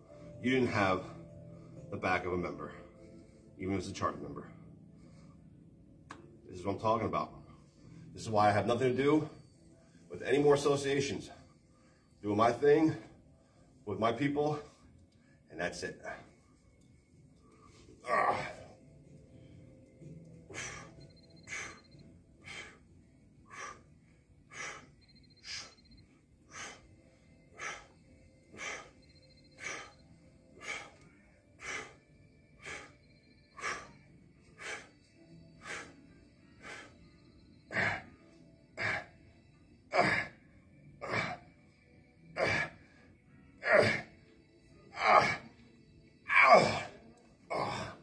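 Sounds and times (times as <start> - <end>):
man breathing forcefully: 20.4 - 36.0.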